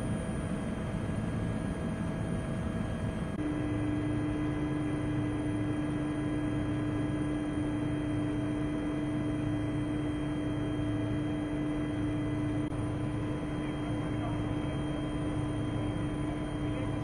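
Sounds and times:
aircraft cabin engine drone: 0.0 - 17.0.

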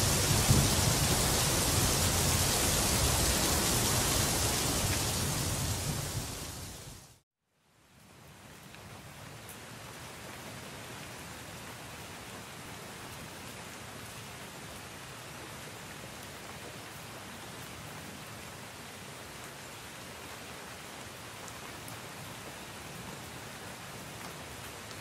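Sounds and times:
steady rain falling: 0.0 - 25.0.

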